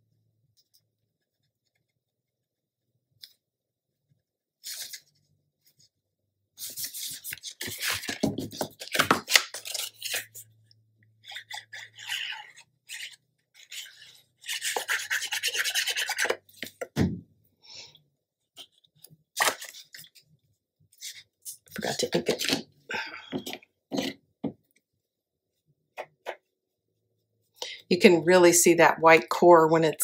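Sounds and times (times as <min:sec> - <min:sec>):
rasping rubbing of paper: 0:11.2 - 0:16.4.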